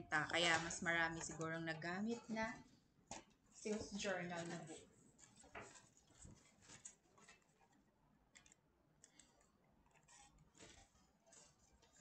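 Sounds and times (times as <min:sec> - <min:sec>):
computer mouse clicks: 0:08.3 - 0:10.0.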